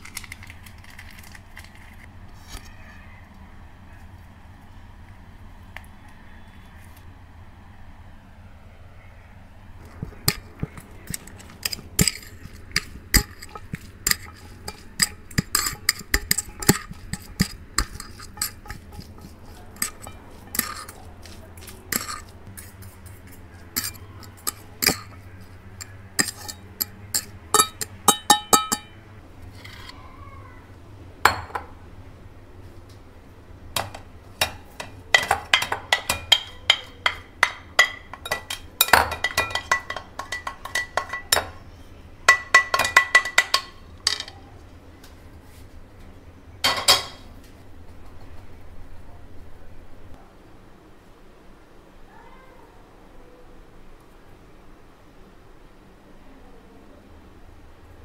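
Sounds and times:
forks clinking on ceramic plate: 0:10.0 - 0:29.0, 0:34.4 - 0:41.6, 0:42.3 - 0:44.3, 0:46.6 - 0:47.2.

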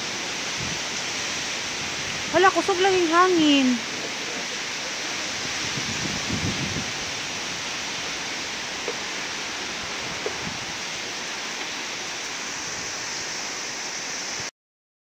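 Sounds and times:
strong wind blowing: 0:00.0 - 0:13.4.

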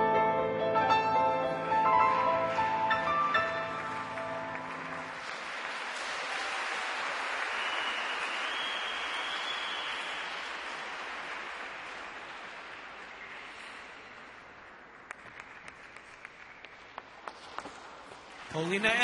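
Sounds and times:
skating music: 0:00.0 - 0:05.8
audience applauding: 0:02.1 - 0:16.8
long high whistle: 0:07.5 - 0:10.4.

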